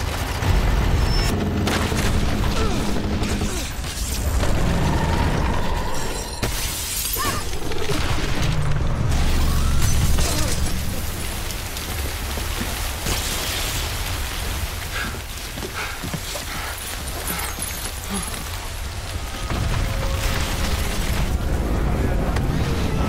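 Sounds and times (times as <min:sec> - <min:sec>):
debris crashing: 0:00.0 - 0:15.6, 0:16.8 - 0:23.0
glass panes shattering: 0:06.2 - 0:07.5
deep rumble: 0:18.8 - 0:23.0.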